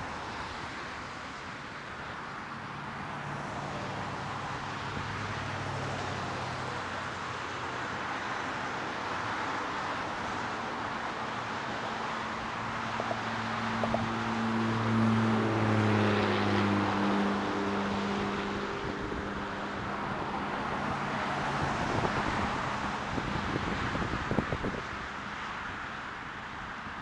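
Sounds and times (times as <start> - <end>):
vehicle engine hum: 0.0 - 27.0
tyres and wind hiss: 15.6 - 27.0.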